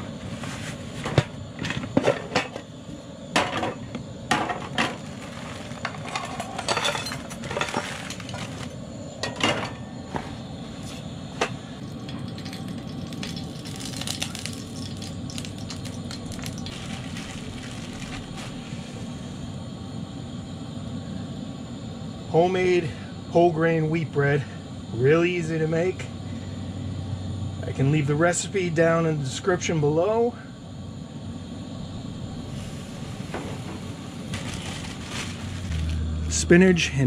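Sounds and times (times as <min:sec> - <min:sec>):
pots and pans clinking: 0:05.8 - 0:08.5
low rushing noise: 0:15.8 - 0:22.2, 0:31.0 - 0:37.0.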